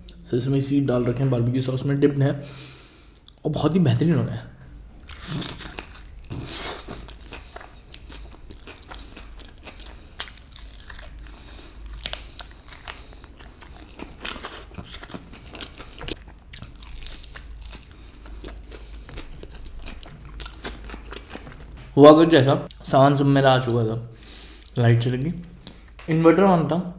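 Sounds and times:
person chewing crunchy food: 4.7s - 22.0s.

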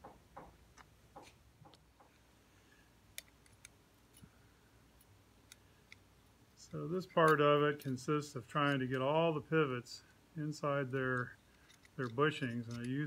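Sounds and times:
clicks of small clock parts: 11.2s - 13.0s.

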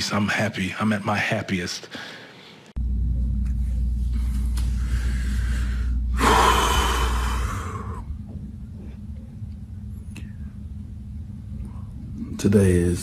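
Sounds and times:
steady low hum: 2.2s - 13.0s
man breathing heavily: 4.2s - 8.1s.

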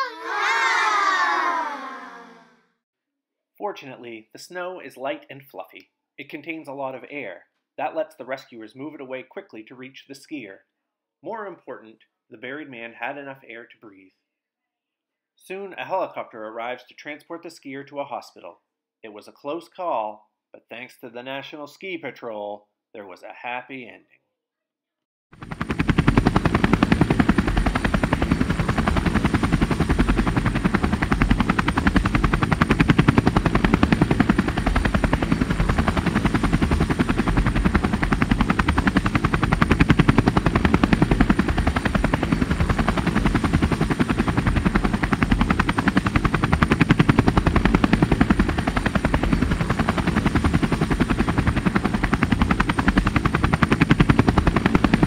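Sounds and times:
helicopter rotor blades chopping: 25.4s - 55.0s.

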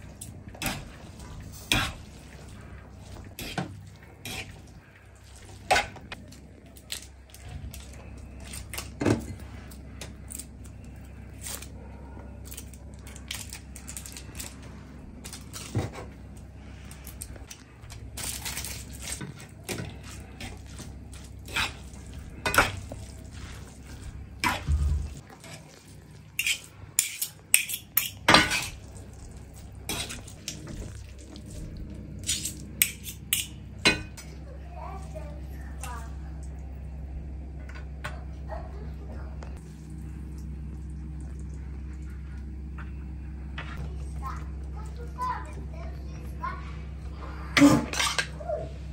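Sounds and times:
low steady hum: 0.0s - 48.9s.

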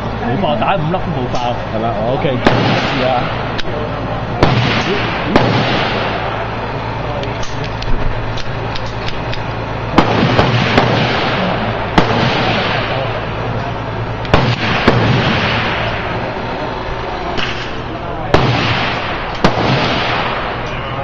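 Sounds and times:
steady background noise: 0.0s - 21.0s
gunshots: 2.4s - 3.7s, 4.4s - 6.6s, 9.9s - 13.4s, 14.2s - 21.0s.

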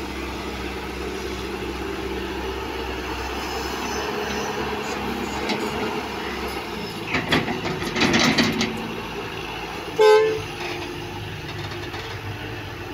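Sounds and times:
excavator diesel engine running: 0.0s - 12.9s
vehicle horn toot: 10.0s - 10.5s.

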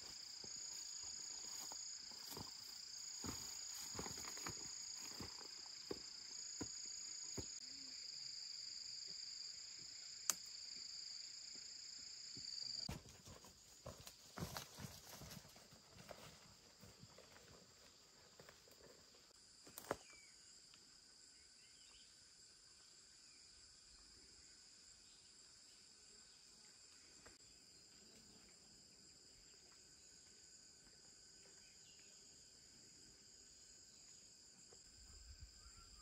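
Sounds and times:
insects chirring: 0.0s - 36.0s.

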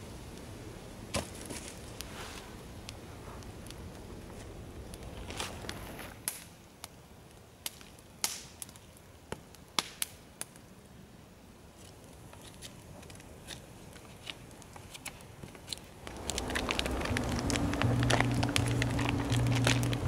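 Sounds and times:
campfire crackling: 0.0s - 20.0s
sharp pops of fire: 4.9s - 7.0s, 7.6s - 10.6s.

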